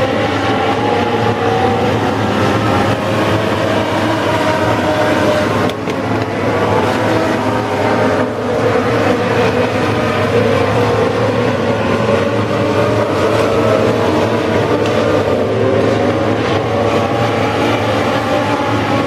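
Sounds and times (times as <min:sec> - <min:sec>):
race car engines at high revs: 0:00.0 - 0:19.0.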